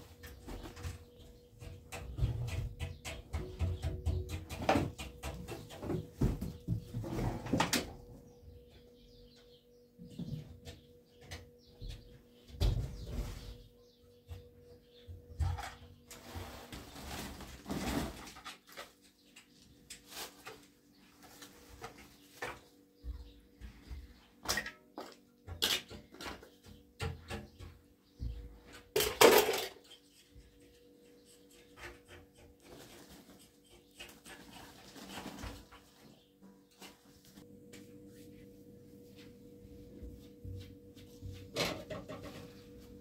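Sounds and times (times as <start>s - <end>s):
plastic sack rustling: 16.2s - 18.5s.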